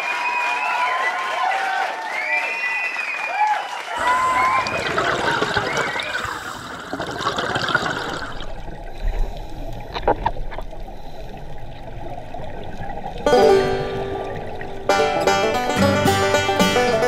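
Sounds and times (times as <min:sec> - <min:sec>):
underwater exhaled bubbles: 0:04.0 - 0:15.8
plucked-string music: 0:13.2 - 0:17.0.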